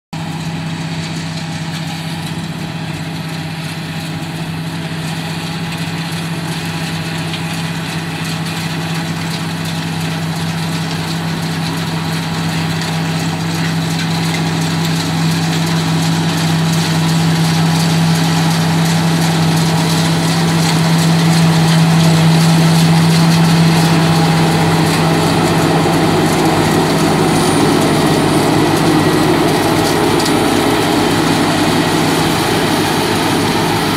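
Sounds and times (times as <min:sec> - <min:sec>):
deep engine drone: 0:00.1 - 0:33.9.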